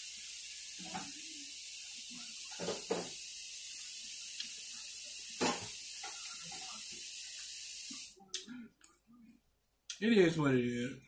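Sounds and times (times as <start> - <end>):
steady hiss: 0.0 - 8.2.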